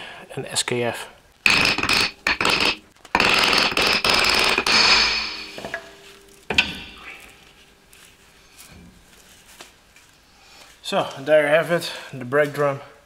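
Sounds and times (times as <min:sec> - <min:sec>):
metal scraping and rattling: 0:01.4 - 0:09.5
sharp metallic clank: 0:01.5 - 0:07.8.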